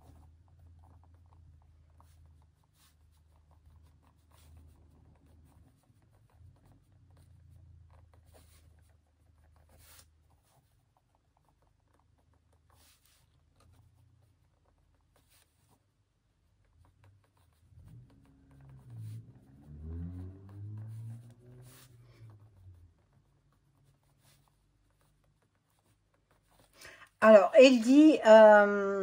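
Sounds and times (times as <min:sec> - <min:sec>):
pen scratching on paper: 0:00.0 - 0:26.8.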